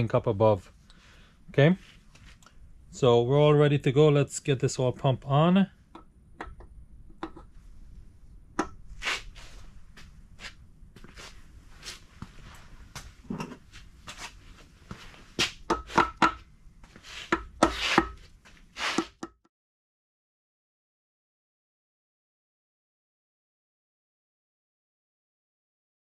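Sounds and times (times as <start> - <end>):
metal clicks and knocks: 6.0 - 7.5.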